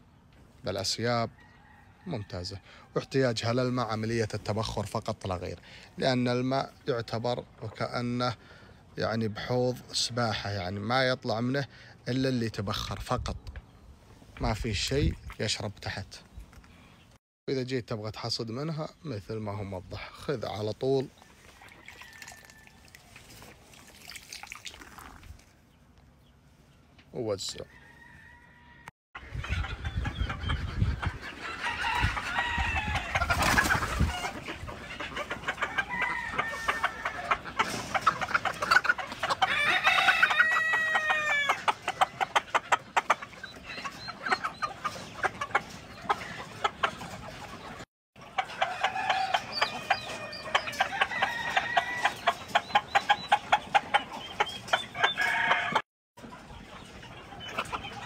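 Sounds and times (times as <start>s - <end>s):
hens clucking: 29.2s - 58.0s.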